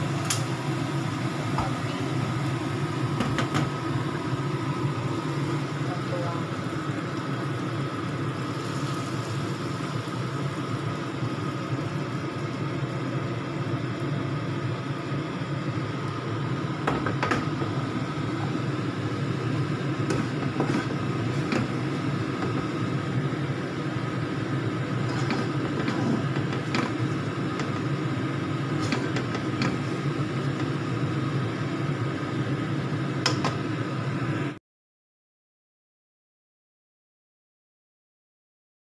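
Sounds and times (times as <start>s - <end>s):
steady mechanical hum: 0.0s - 34.6s
utensil scraping wok and bowl: 20.1s - 21.8s, 25.0s - 27.8s.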